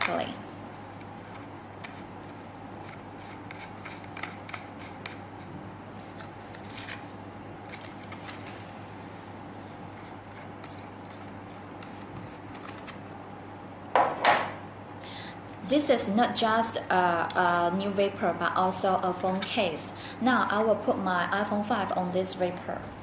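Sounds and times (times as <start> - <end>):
steady low hum: 0.0 - 23.0
small parts clicking and scraping: 7.7 - 8.7.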